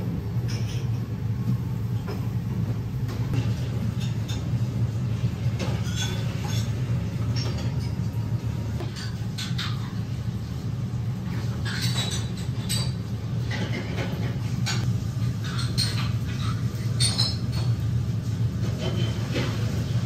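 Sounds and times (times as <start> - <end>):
low restaurant hum: 0.0 - 20.0
dishes and utensils clinking: 0.3 - 1.1, 3.1 - 10.2, 11.2 - 17.9, 18.6 - 20.0.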